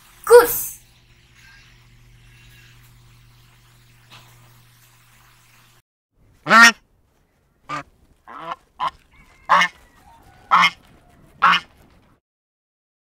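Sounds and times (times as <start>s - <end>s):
geese honking: 6.4s - 6.8s, 7.7s - 11.8s.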